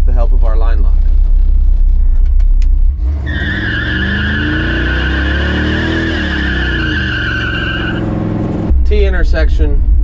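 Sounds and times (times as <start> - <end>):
truck engine rumbling and revving: 0.0 - 10.0
tires squealing: 3.0 - 8.3.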